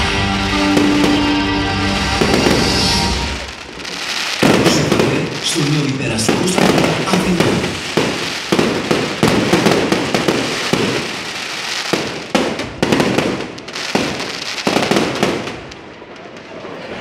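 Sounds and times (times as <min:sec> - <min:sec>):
fireworks bursting with sharp bangs: 0:00.4 - 0:17.0
continuous dense noise: 0:15.5 - 0:17.0.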